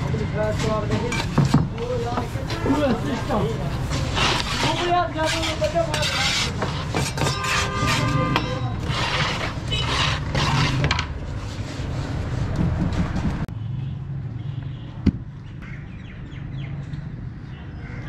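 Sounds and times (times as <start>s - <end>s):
blade scraping wet cement: 4.0s - 11.9s.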